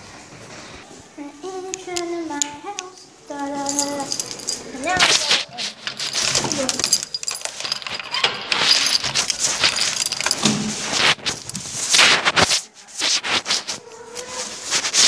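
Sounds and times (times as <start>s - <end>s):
keys jangling: 3.6s - 11.9s.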